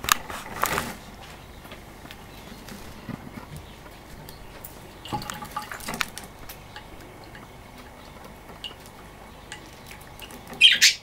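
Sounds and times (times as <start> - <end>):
water drips and clicks: 3.9 - 10.8
bird splashing in water: 4.9 - 8.0.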